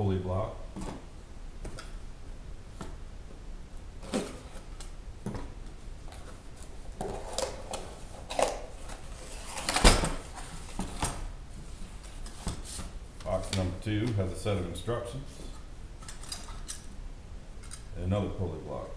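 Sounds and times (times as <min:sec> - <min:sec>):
cardboard rustling: 0:04.0 - 0:13.7.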